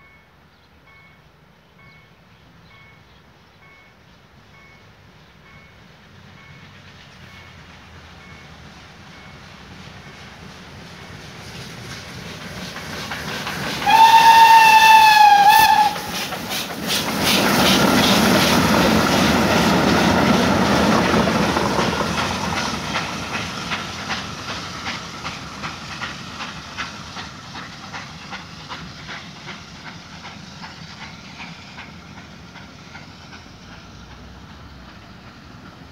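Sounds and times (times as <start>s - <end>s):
locomotive passing close by: 5.8s - 35.9s
train wheels clicking over rail joints: 6.2s - 35.9s
steam locomotive whistle: 13.8s - 16.3s.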